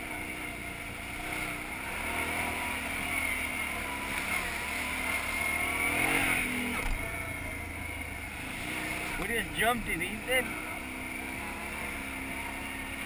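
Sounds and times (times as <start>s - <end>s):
atv engine revving: 0.0s - 13.0s.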